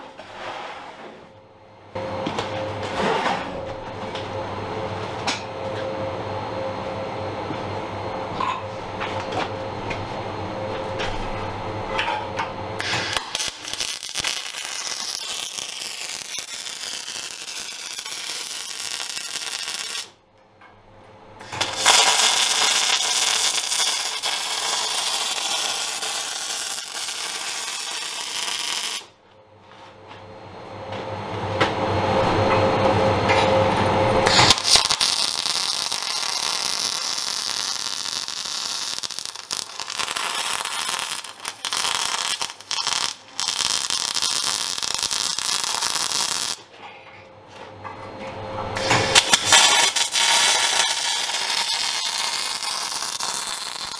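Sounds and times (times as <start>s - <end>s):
welder arc burning: 12.8s - 20.2s, 21.4s - 29.2s, 34.2s - 46.7s, 48.8s - 53.9s.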